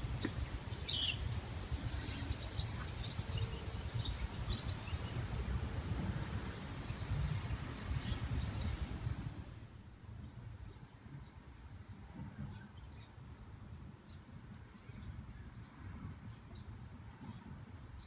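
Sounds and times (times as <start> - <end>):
small birds chirping: 0.0 - 9.5.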